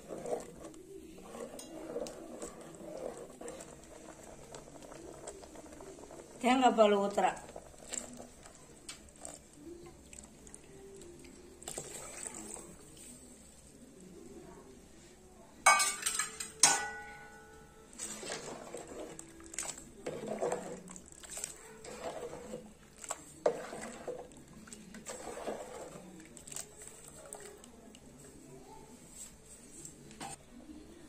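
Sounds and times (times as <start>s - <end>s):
ladle stirring and scraping pot: 0.0s - 13.6s, 15.7s - 28.4s
utensils clanking on metal pot: 15.6s - 22.7s.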